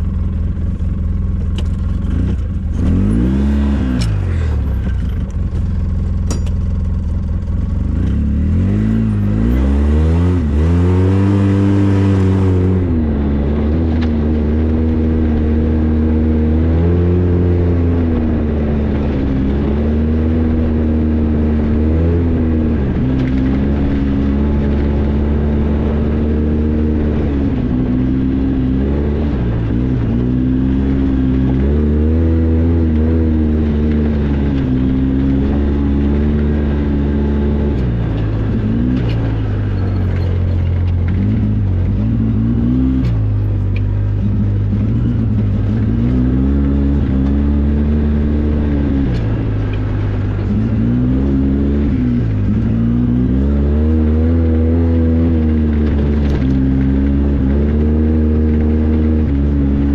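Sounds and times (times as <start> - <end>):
vehicle engine revving: 0.0 - 59.9.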